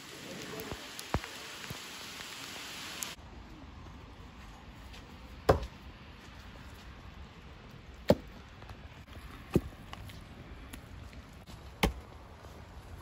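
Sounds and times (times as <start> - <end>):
steady rain falling: 0.0 - 4.1.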